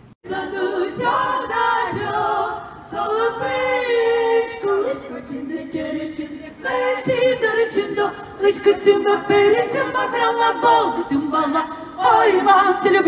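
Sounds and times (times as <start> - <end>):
choir singing unaccompanied: 0.2 - 13.0.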